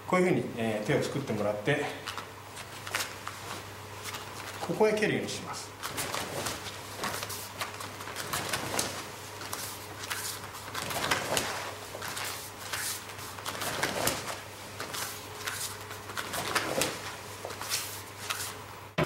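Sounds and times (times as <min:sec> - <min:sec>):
electrical hum: 0:00.0 - 0:19.0
bare feet stepping on floor: 0:05.8 - 0:18.5
cotton clothing swishing: 0:05.8 - 0:18.6.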